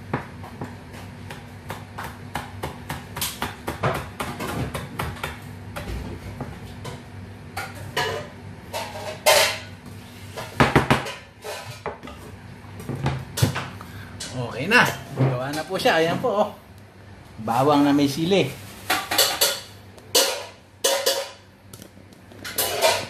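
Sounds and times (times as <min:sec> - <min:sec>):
knife chopping on cutting board: 0:00.1 - 0:06.6.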